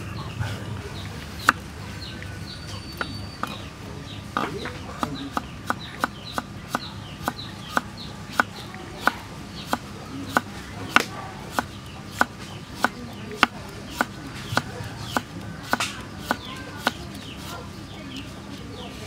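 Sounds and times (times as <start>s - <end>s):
knife slicing carrot on wood: 4.4s - 17.7s.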